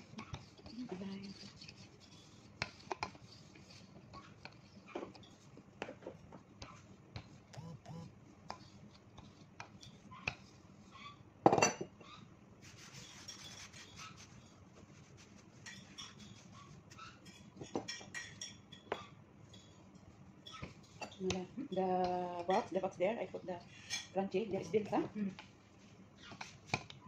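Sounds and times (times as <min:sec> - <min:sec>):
hands rubbing dough: 0:00.0 - 0:11.1, 0:12.6 - 0:18.2, 0:24.6 - 0:27.0.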